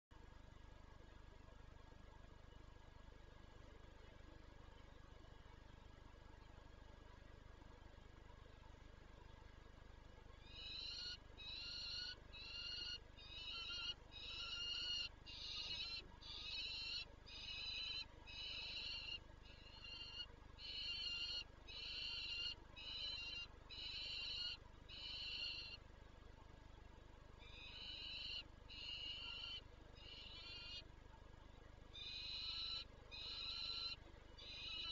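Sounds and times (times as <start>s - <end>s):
falcon harsh rasping calls: 10.5s - 25.8s, 27.5s - 30.8s, 32.0s - 34.9s.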